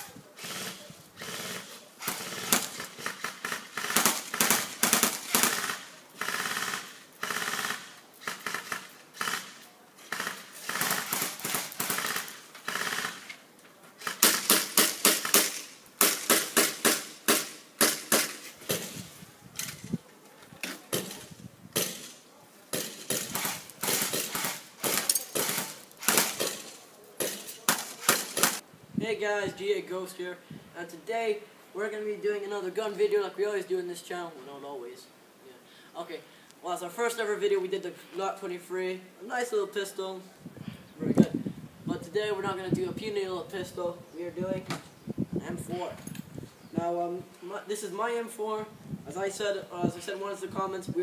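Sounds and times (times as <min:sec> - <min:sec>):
airsoft gun rapid bursts: 0:00.4 - 0:13.3, 0:14.0 - 0:19.0, 0:22.7 - 0:28.6.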